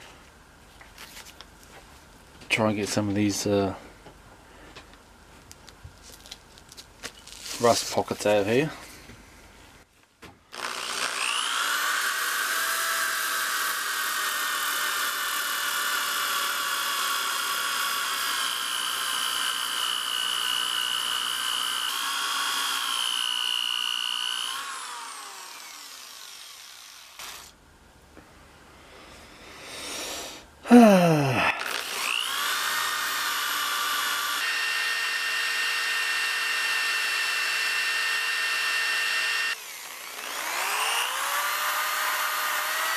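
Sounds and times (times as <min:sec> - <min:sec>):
orbital sander whining on steel: 0:10.6 - 0:27.5, 0:31.8 - 0:42.9.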